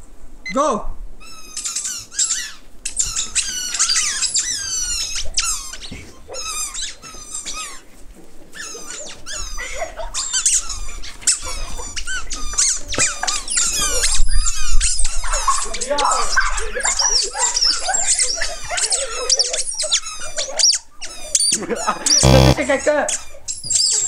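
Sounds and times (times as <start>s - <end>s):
high-pitched sliding squeaks: 22.2s - 22.6s.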